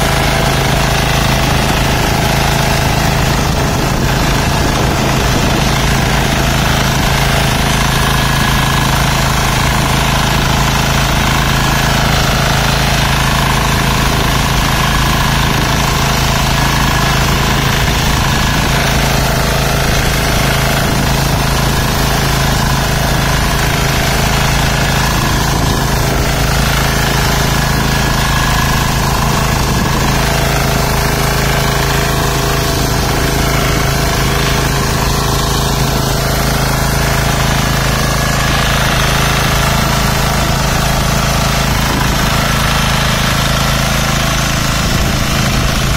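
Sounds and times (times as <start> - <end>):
tines churning mud: 0.0 - 45.9
weeder engine running: 0.0 - 45.9.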